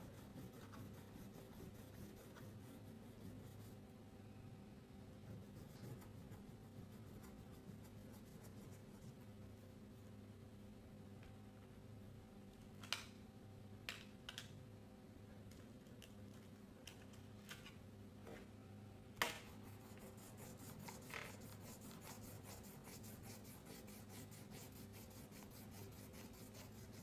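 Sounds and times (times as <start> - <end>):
crayon scribbling on paper: 0.0 - 3.8, 19.7 - 27.0.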